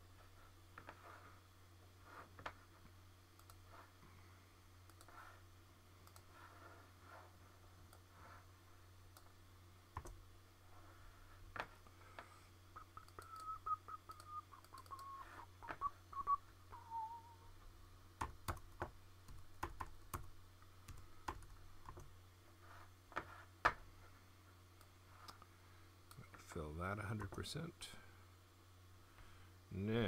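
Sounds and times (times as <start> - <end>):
computer mouse clicks: 3.4 - 3.6, 4.9 - 5.2, 6.0 - 6.3, 13.0 - 13.5, 14.1 - 15.1
low hum: 3.4 - 18.1
person whistling: 12.8 - 17.5.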